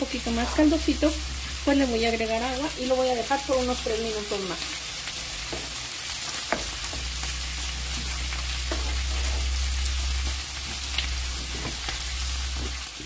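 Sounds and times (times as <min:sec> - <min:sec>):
steady low hum: 0:00.0 - 0:04.1
meat sizzling in a frying pan: 0:00.0 - 0:13.0.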